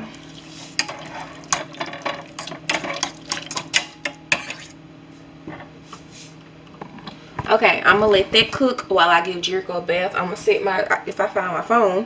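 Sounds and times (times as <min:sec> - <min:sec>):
spoon stirring in metal saucepan: 0:00.1 - 0:04.8.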